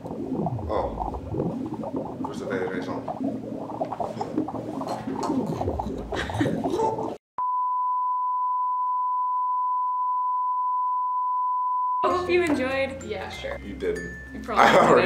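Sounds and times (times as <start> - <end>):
steady test tone: 0.0 - 6.4.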